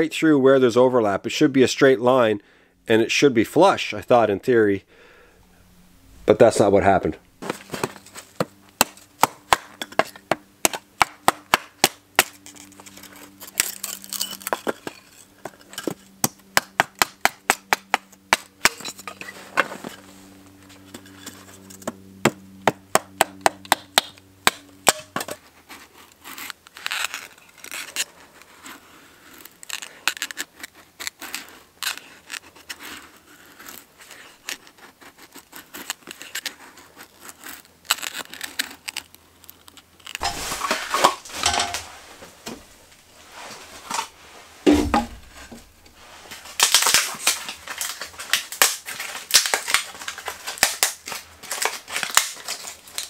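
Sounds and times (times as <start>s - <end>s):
hatchet chopping wood: 7.4s - 12.4s, 14.6s - 19.0s, 21.8s - 25.4s, 44.7s - 45.6s
knife shaving stick: 25.4s - 40.8s.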